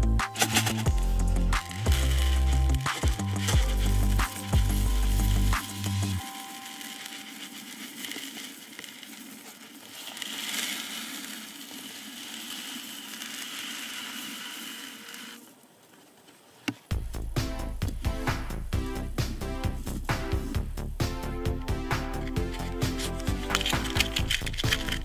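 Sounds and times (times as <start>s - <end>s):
music with a beat: 0.0s - 7.1s, 16.9s - 25.0s
matchsticks pouring rustle: 0.0s - 15.5s, 22.2s - 25.0s.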